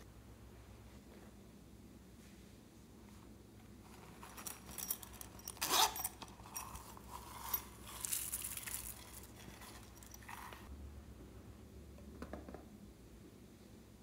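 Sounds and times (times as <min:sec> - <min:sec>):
beads rattling into glass dish: 0:04.2 - 0:10.7
zipper pouch unzipping: 0:05.5 - 0:10.6.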